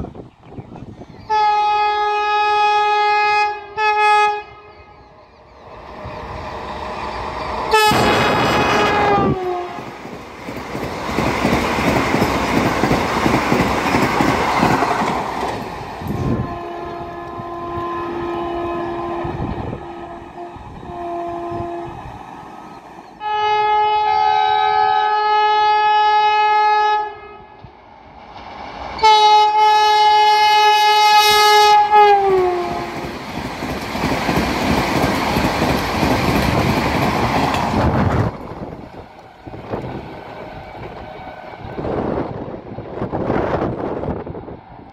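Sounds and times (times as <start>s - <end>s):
multi-tone train horn: 1.3s - 5.0s, 7.7s - 10.0s, 16.1s - 22.2s, 23.2s - 27.8s, 29.0s - 33.1s.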